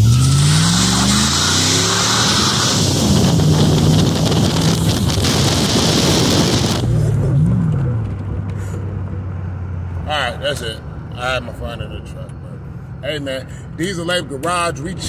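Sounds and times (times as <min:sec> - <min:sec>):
pickup engine pulling hard: 0:00.0 - 0:12.2
wind noise on microphone: 0:02.2 - 0:07.0.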